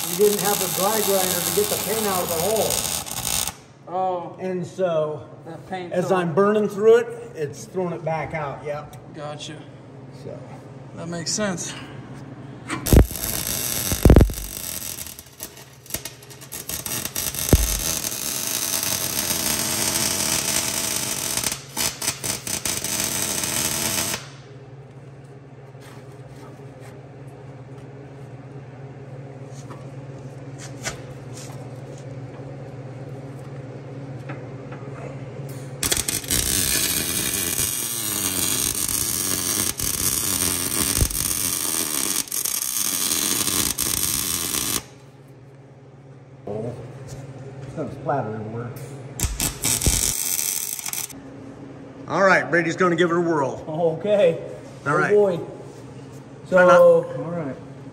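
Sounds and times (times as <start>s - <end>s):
arc welding crackling and hissing: 0.0s - 3.7s, 12.8s - 24.5s, 35.5s - 45.0s, 49.2s - 51.2s.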